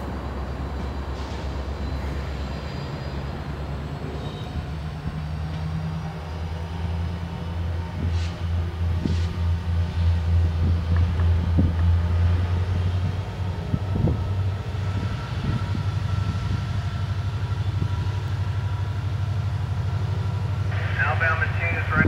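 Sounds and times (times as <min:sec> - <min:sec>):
diesel locomotive rumble: 0:00.0 - 0:22.0
train clanking on rails: 0:07.8 - 0:20.5.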